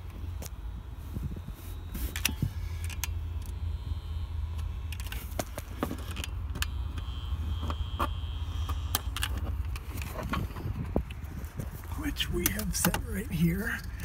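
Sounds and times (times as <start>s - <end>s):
clicks and rattles of tools: 4.9s - 6.7s.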